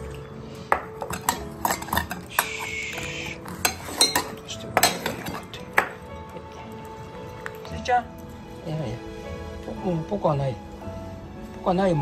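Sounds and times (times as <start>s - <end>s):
metal dishes clinking: 0.0s - 6.1s
background music: 0.0s - 12.0s.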